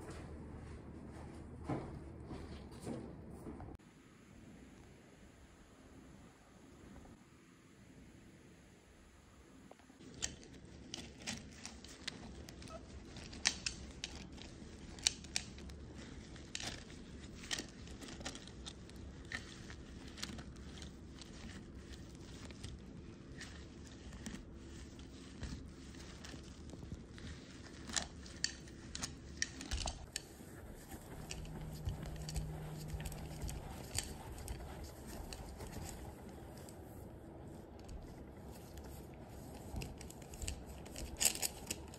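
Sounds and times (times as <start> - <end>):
low steady hum: 0.0 - 41.9
cloth rubbing glass vase: 19.1 - 41.0.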